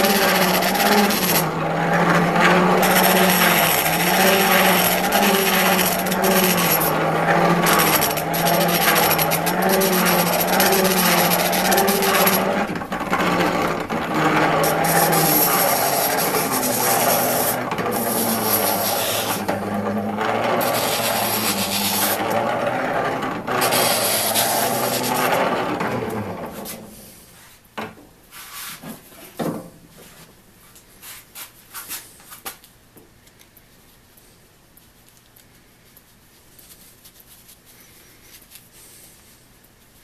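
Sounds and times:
hand-cranked grinder whining: 0:00.0 - 0:26.9.

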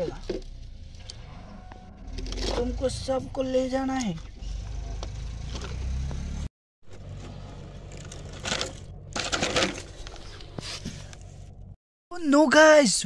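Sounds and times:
toy truck clattering against bucket: 0:07.9 - 0:10.2
plastic rattling: 0:07.9 - 0:10.3.

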